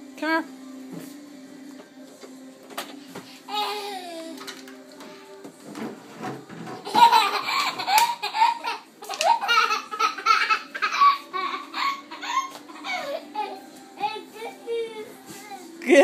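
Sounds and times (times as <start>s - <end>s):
toddler laughing: 6.8s - 14.9s.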